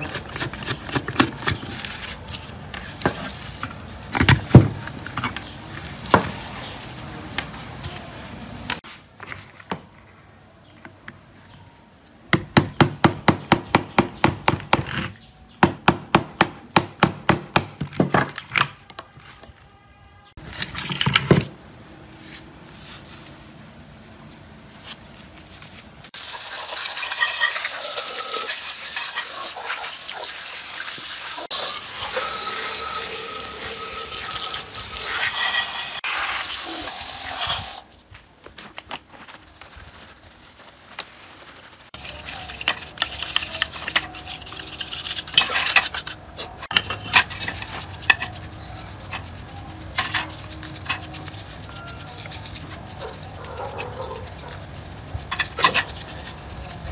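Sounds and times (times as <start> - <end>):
pressure washer water jet hissing: 26.2 - 37.9.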